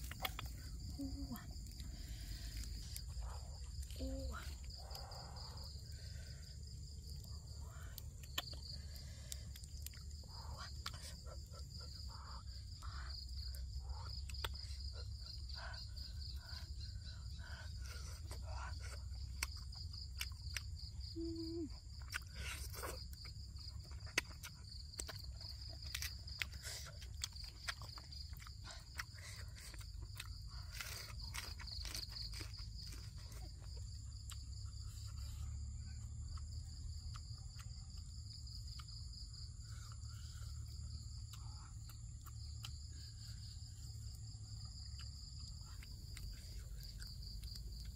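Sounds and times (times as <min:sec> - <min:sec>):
insects chirping trill: 0:00.0 - 0:47.9
person chewing food: 0:00.0 - 0:47.9.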